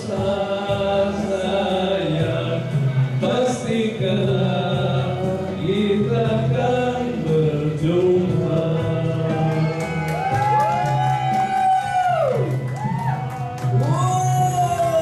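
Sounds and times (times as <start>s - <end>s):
man and woman singing: 0.0s - 10.3s
backing music: 0.0s - 15.0s.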